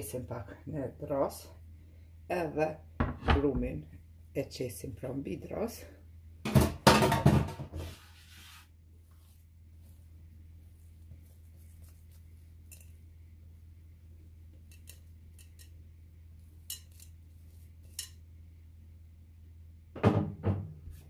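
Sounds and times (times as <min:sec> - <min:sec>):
faint low hum: 0:00.0 - 0:06.5, 0:07.6 - 0:20.0
bowl clicks and scrapes: 0:11.6 - 0:13.0.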